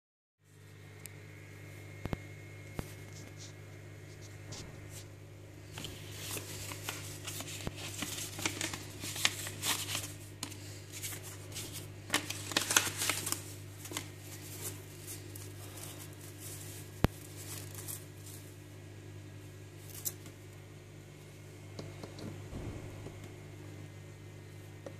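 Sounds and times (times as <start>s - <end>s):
steady low hum: 0.4s - 24.9s
paper rustling and crinkling: 2.8s - 18.8s, 19.8s - 20.4s.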